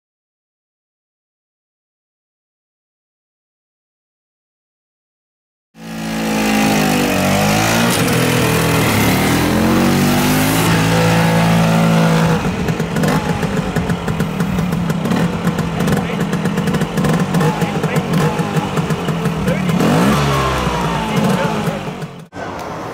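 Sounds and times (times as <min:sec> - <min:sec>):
scooter engine revving: 0:05.8 - 0:22.9.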